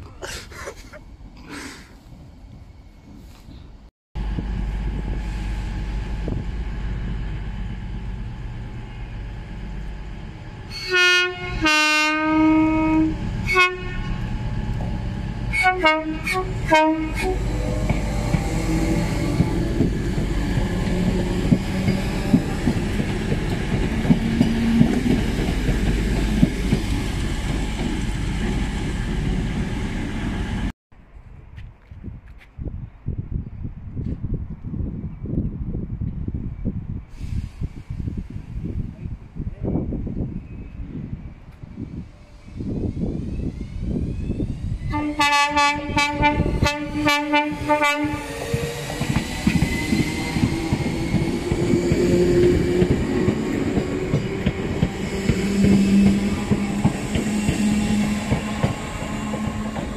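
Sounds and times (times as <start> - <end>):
train horn: 10.7 - 14.2, 15.5 - 17.7, 44.9 - 48.4
electric train running: 14.1 - 30.7, 46.4 - 59.9.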